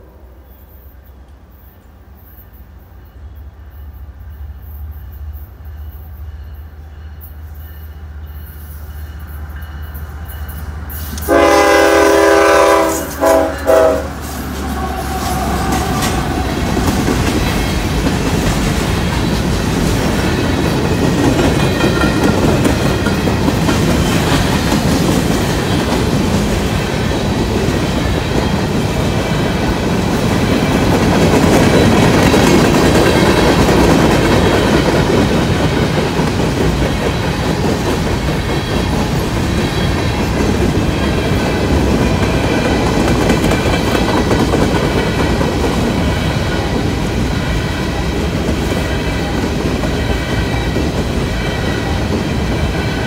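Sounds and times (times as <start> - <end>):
train rumble: 0.0 - 53.0
train wheels clattering on rails: 4.8 - 53.0
locomotive horn blasts: 11.2 - 16.9.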